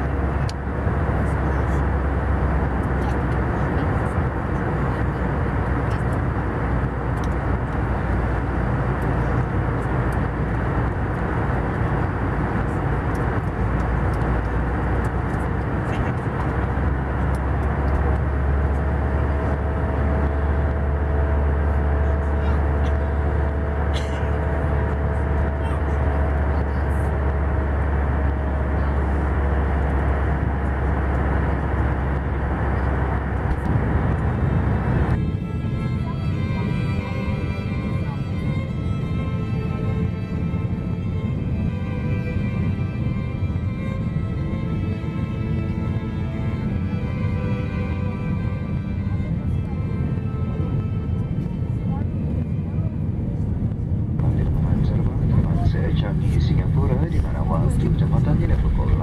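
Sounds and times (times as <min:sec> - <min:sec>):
aircraft engines rumbling: 0:00.0 - 0:59.0
airplane cabin noise: 0:00.0 - 0:59.0.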